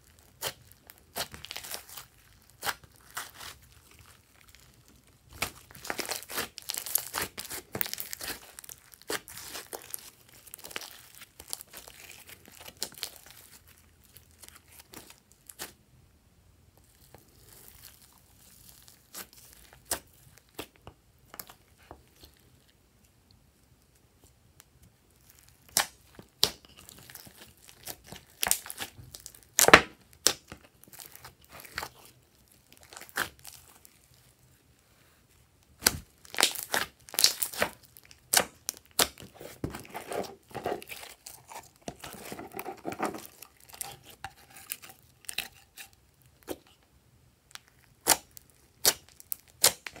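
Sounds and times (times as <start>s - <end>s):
sticky slime crackles: 0.0s - 15.8s, 16.8s - 23.2s, 23.8s - 34.8s, 35.6s - 46.8s, 47.5s - 50.0s
sharp slime pops: 35.8s - 39.2s.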